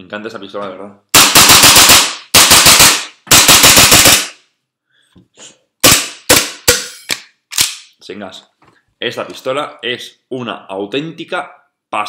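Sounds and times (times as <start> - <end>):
airsoft pistol firing: 1.2 - 4.4, 5.8 - 6.9.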